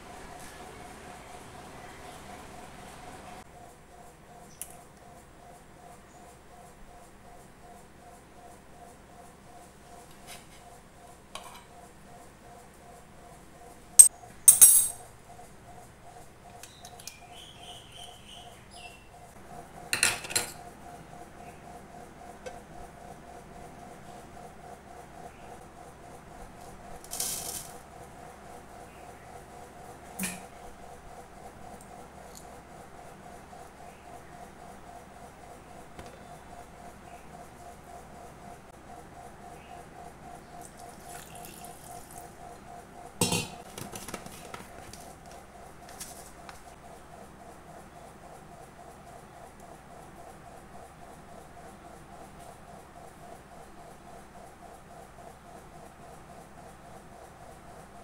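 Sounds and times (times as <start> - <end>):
metal bowl and spoon clanking: 14.5 - 15.0, 43.2 - 43.6
milk pouring: 40.6 - 42.3.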